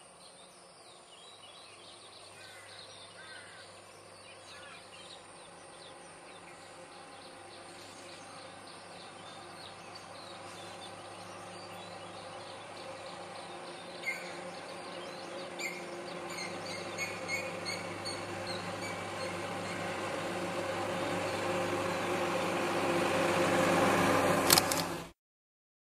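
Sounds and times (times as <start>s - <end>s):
bird chirps: 0.3s - 19.9s
heavy truck engine approaching: 3.0s - 25.1s.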